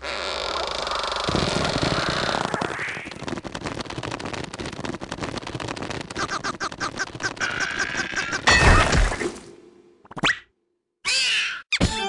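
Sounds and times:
fast scratchy rattle: 0.5s - 8.4s
nasal squeaky cries: 11.0s - 11.8s.

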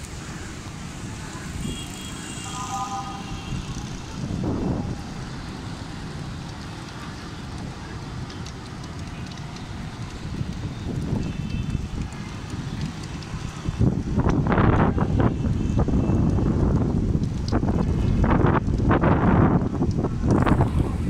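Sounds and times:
low rumble of city traffic: 0.0s - 21.0s
distant vehicle horn: 1.6s - 3.9s
wind buffeting microphone: 3.1s - 6.7s, 7.4s - 21.0s.

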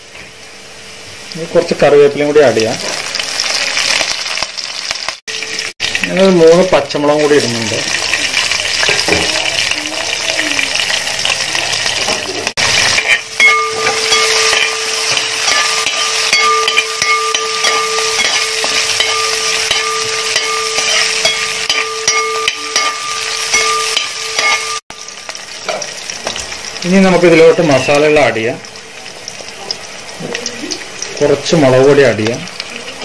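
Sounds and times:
food sizzling in hot oil: 0.0s - 33.0s
spatula scraping a pan: 12.6s - 24.8s.

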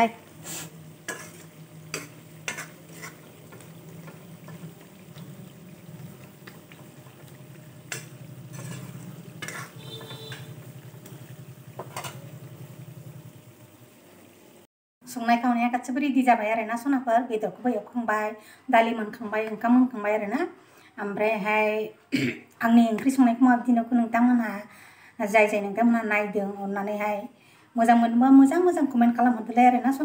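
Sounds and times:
curry sizzling: 0.0s - 14.7s
metal ladle clinking and scraping pan: 1.0s - 5.2s, 6.0s - 12.4s.

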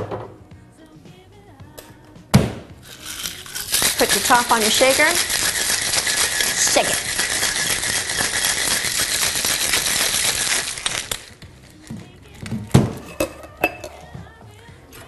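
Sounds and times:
ice rattling in cocktail shaker: 2.8s - 12.0s
metal and glass clinks: 13.0s - 14.0s.

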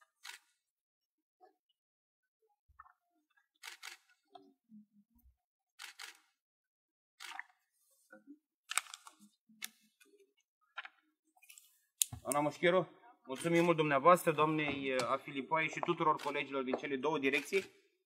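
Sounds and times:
camera shutters clicking: 8.7s - 9.2s, 16.2s - 16.4s, 17.3s - 17.7s.

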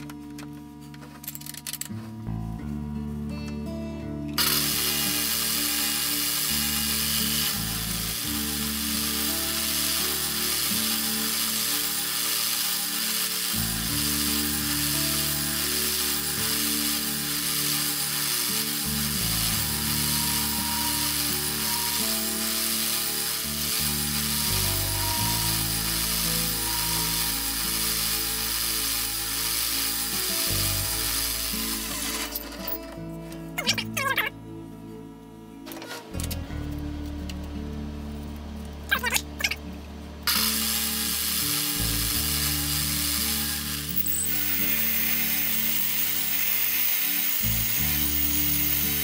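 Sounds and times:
background music: 0.0s - 49.0s
metal lathe whirring: 4.4s - 32.8s, 40.3s - 49.0s.

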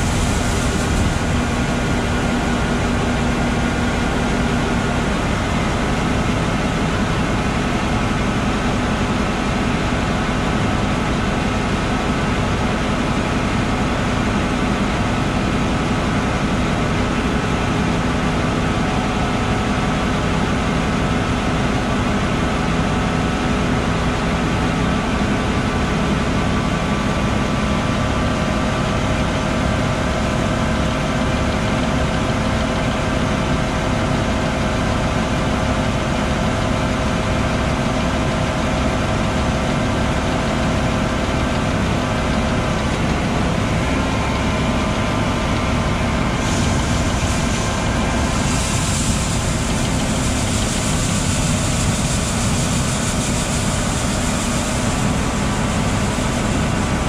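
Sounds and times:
diesel tractor engine running: 0.0s - 57.0s.

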